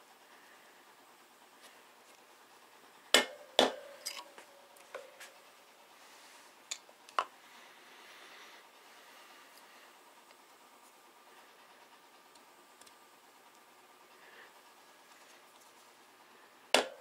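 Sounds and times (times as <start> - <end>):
light clicks of metal tools: 4.0 - 4.9.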